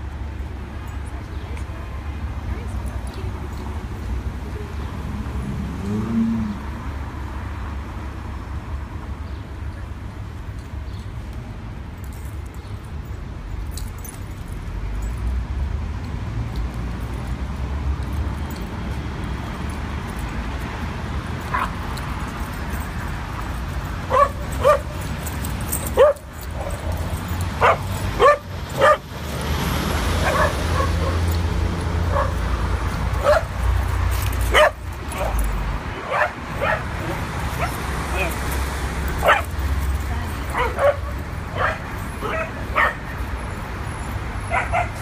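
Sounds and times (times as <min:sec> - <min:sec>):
dogs yipping and barking: 0:21.4 - 0:45.0.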